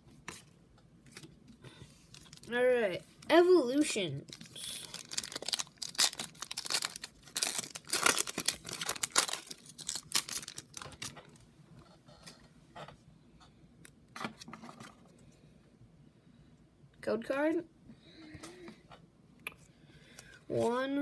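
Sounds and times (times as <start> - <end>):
foil wrapper crinkling and tearing: 2.1 - 2.5, 4.3 - 11.2.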